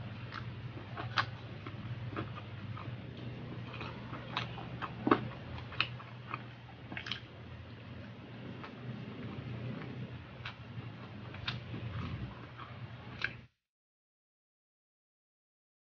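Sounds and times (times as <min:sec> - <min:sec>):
low steady hum: 0:00.0 - 0:13.6.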